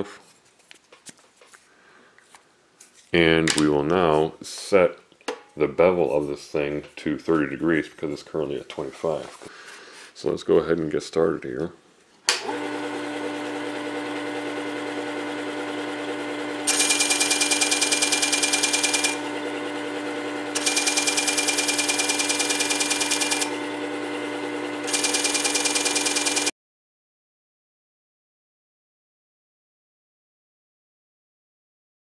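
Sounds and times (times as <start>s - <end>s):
sharpener motor running: 12.5s - 26.5s.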